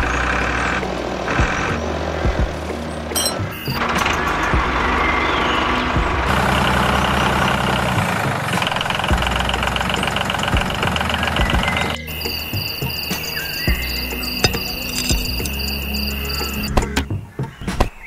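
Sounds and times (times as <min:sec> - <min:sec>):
engine idling: 0:00.0 - 0:16.8
insect chirping: 0:12.0 - 0:16.7.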